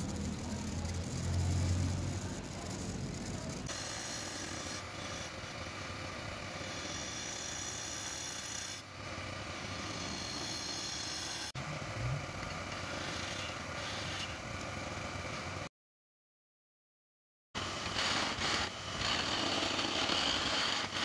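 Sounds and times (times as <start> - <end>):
chisel scraping spinning wood: 0.0 - 5.8, 6.4 - 11.5, 12.5 - 14.4, 17.6 - 21.0
wood lathe running: 0.0 - 11.6, 12.5 - 14.4, 17.6 - 21.0.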